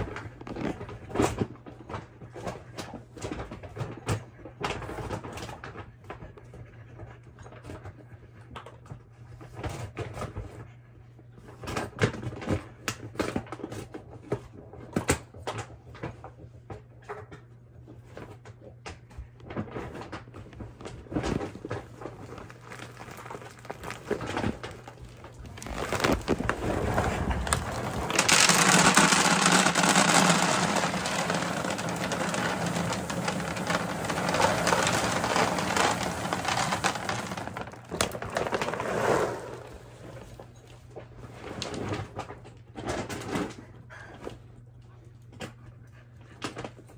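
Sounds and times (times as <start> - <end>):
dry kibble pouring into plastic bin: 21.4 - 40.3
scattered clicks and knocks: 27.5 - 38.2.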